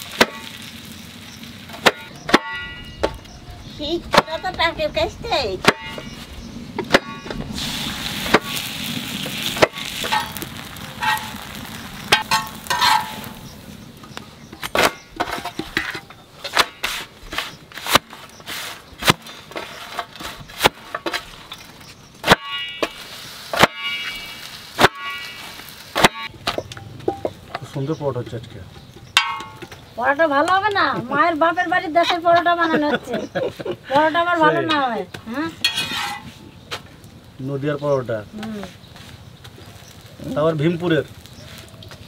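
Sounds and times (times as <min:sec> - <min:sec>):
steady hiss: 0:06.0 - 0:15.1, 0:22.7 - 0:26.2.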